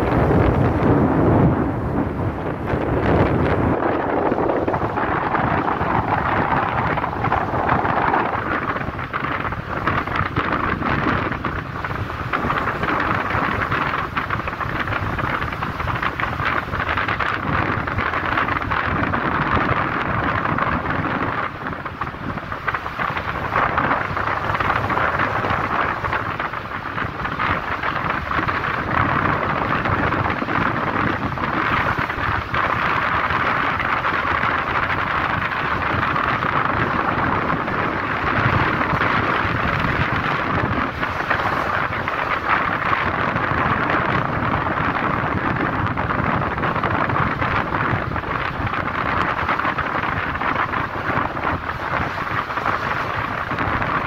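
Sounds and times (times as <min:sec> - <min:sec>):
road and engine noise: 0:00.0 - 0:54.0
wind on microphone: 0:00.0 - 0:54.0.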